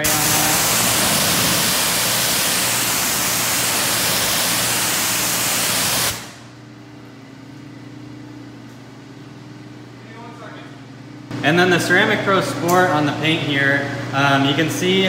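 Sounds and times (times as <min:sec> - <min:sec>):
pressure washer spraying glass: 0:00.0 - 0:06.4.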